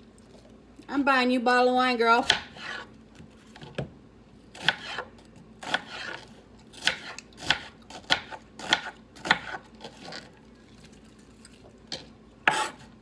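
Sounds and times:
knife slicing onion on board: 0:02.2 - 0:03.8, 0:04.5 - 0:10.2, 0:12.4 - 0:12.9.

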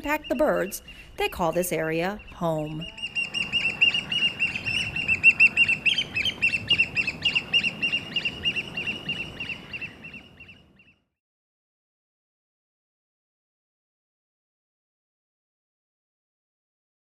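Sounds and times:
oystercatchers piping: 0:00.0 - 0:10.9.

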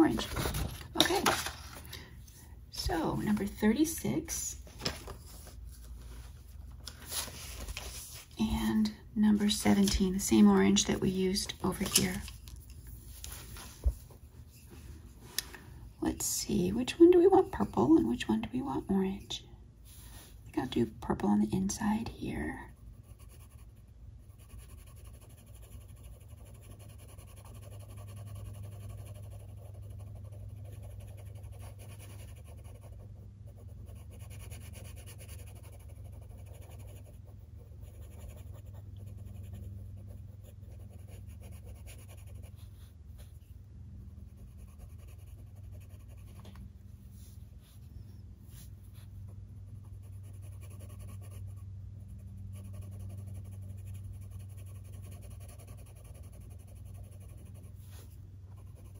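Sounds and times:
colored pencil scratching on paper: 0:07.8 - 0:12.3, 0:16.2 - 0:19.3, 0:20.6 - 0:43.5, 0:44.3 - 0:46.6, 0:47.2 - 0:58.9.

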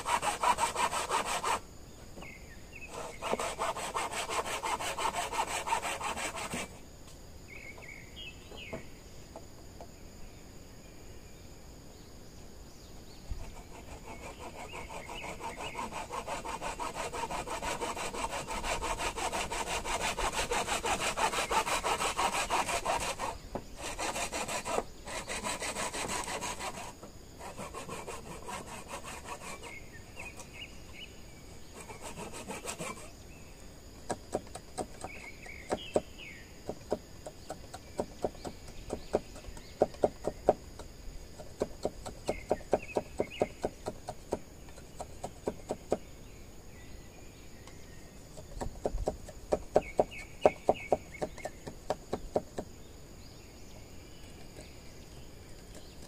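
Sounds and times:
hand saw rasping through bamboo: 0:00.0 - 0:01.6, 0:02.9 - 0:06.8, 0:13.4 - 0:30.5, 0:31.7 - 0:33.1
sharp taps on bamboo: 0:34.0 - 0:46.0, 0:47.7 - 0:52.7.

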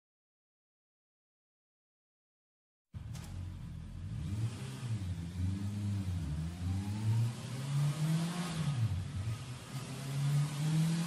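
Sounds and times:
motorcycle engine revving: 0:03.0 - 0:11.0.

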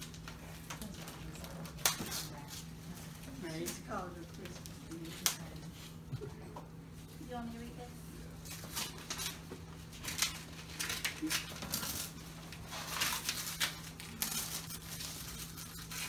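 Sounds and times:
wrapping paper rustling and crinkling: 0:08.3 - 0:16.0.

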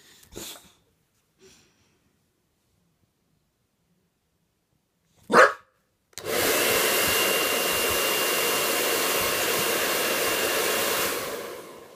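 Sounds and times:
dog barking: 0:05.2 - 0:05.8
hair dryer running: 0:06.2 - 0:11.9.

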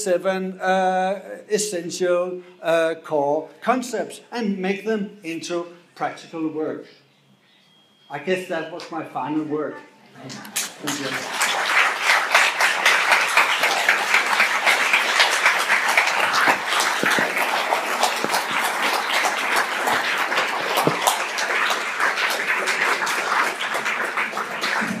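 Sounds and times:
audience applauding: 0:10.5 - 0:25.0.

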